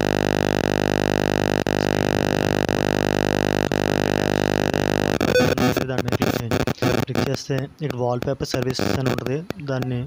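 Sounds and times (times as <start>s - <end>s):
loud electronic buzz: 0.0s - 7.3s.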